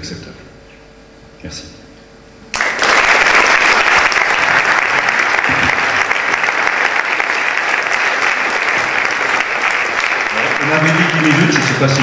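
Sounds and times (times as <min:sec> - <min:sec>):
audience applause: 0:02.5 - 0:12.0.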